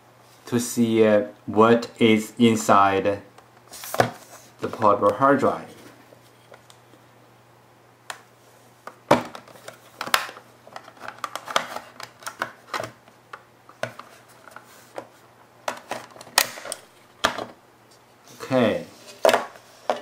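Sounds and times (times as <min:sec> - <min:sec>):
plastic case clicking and snapping: 0:09.2 - 0:14.1.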